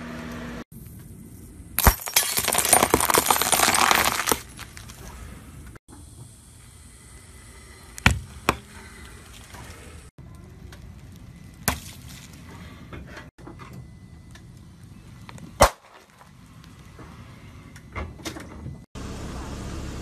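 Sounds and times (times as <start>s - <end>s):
car tyre crushing objects: 1.8s - 5.4s, 11.0s - 12.5s, 15.2s - 17.0s.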